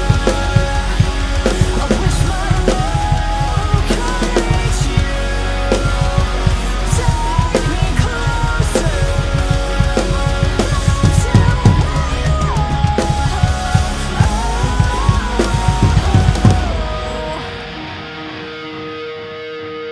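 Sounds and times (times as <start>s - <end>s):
rock backing track with guitars: 0.0s - 19.9s
rock drum kit playing: 0.0s - 19.9s
kick drum strokes: 10.4s - 17.0s.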